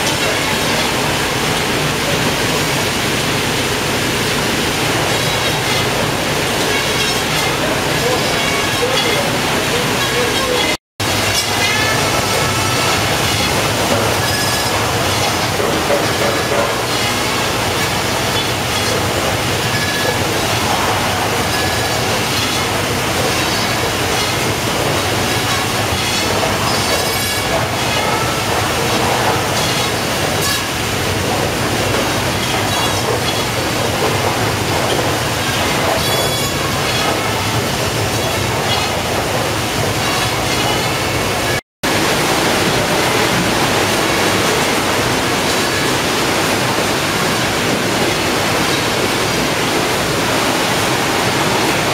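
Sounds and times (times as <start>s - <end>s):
fish-processing machinery din: 0.0s - 51.9s
metallic squeals and clicking: 6.6s - 31.0s, 31.9s - 41.6s.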